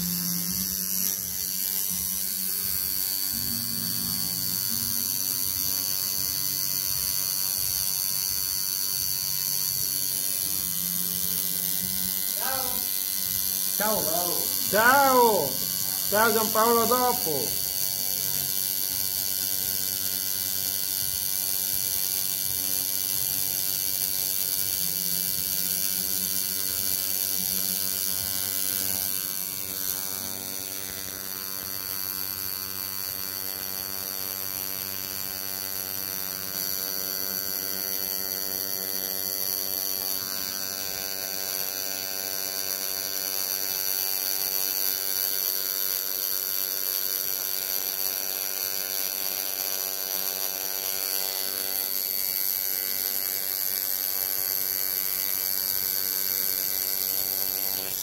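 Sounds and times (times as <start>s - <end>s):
tattoo machine buzzing: 0.0s - 58.0s.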